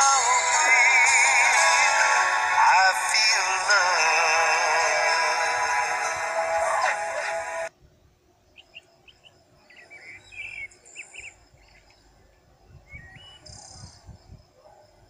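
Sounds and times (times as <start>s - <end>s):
music: 0.0s - 7.7s
faint bird chirps: 8.5s - 15.0s.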